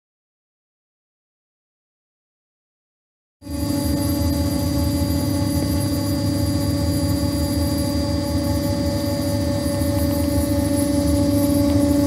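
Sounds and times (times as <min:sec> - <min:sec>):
milling machine spindle humming: 0:03.5 - 0:12.0.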